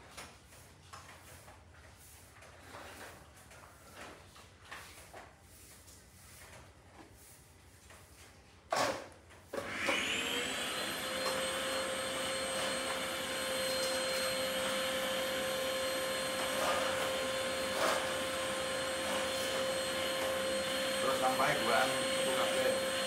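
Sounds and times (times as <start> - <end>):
vacuum cleaner running: 8.8 - 23.0.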